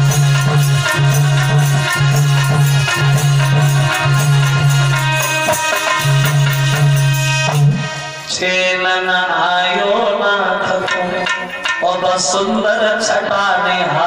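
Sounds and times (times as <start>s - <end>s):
electronic keyboard chords: 0.0s - 8.4s
percussion: 0.0s - 14.0s
man's voice at microphone: 8.3s - 14.0s.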